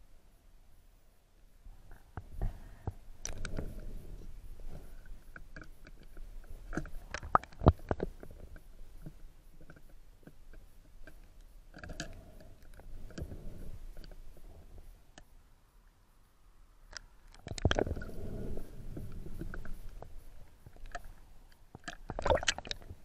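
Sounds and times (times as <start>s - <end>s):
muffled underwater clicks and knocks: 1.9s - 15.3s, 16.9s - 23.0s.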